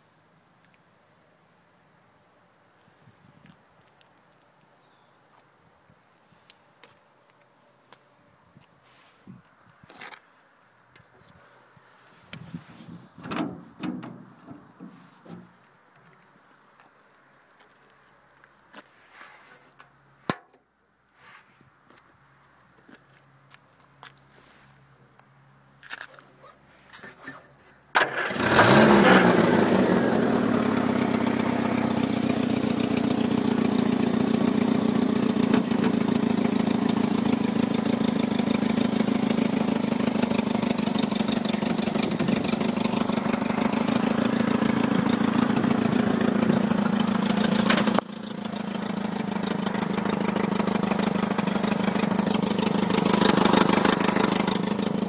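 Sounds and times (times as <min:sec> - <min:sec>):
petrol engine starting and idling: 0:13.1 - 0:15.5, 0:27.9 - 0:55.0.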